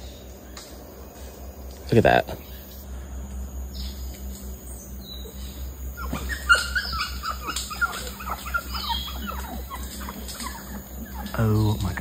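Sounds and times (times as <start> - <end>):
high chirping animal calls: 3.8 - 12.0.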